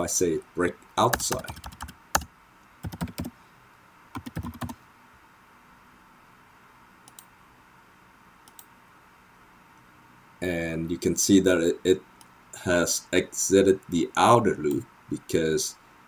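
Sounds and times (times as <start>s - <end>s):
computer keyboard typing: 1.0s - 3.3s, 4.2s - 4.8s
mouse clicks: 7.1s - 7.3s.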